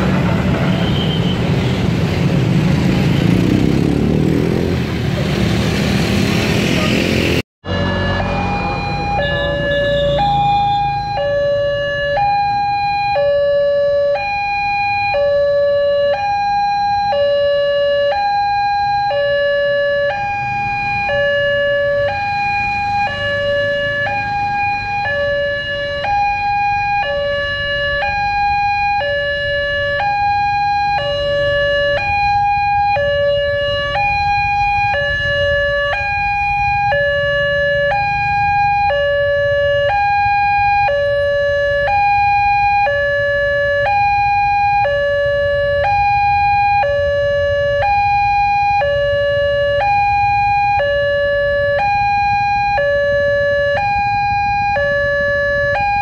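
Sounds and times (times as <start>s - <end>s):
level crossing alarm two-tone signal: 7.6s - 56.0s.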